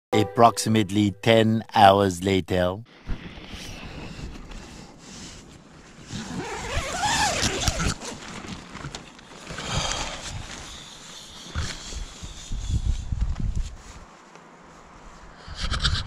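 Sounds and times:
tent zipper being pulled: 5.4s - 10.9s.

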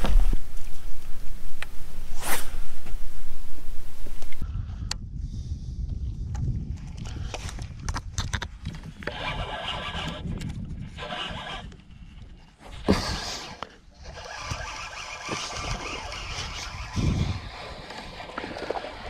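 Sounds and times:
fishing reel whirring rattle: 14.1s - 19.0s.

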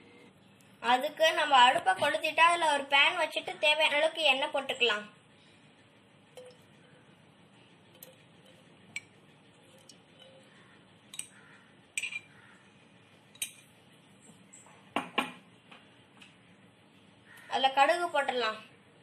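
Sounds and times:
pan and utensils clinking: 12.0s - 12.3s.

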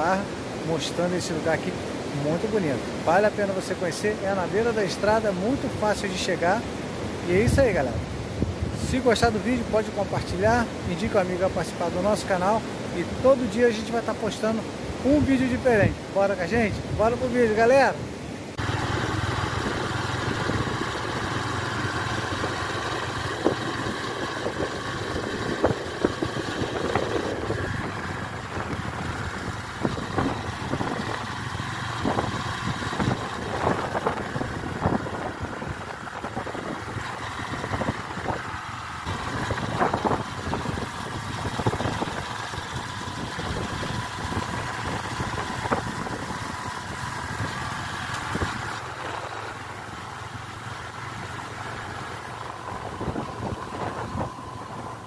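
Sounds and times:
motorcycle engine running: 18.6s - 55.0s.

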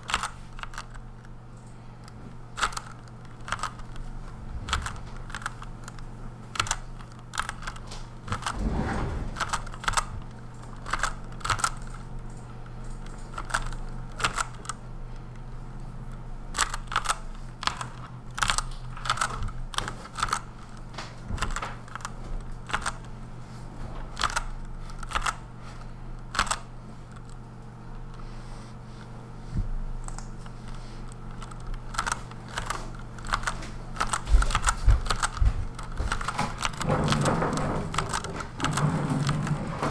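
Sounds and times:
steady low hum: 0.0s - 39.9s
mechanical keyboard key clicks: 31.4s - 37.3s.

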